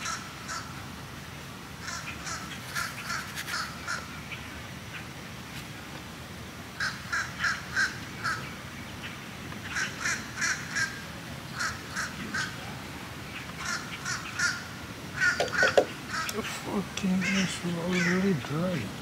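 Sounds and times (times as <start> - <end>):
bird calling in short calls: 1.8 - 4.4, 6.8 - 19.0.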